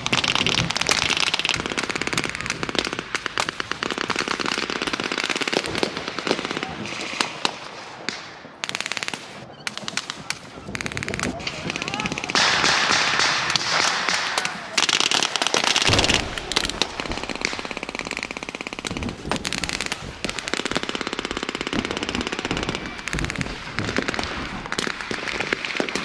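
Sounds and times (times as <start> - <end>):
single gunshots: 15.8 - 20.5.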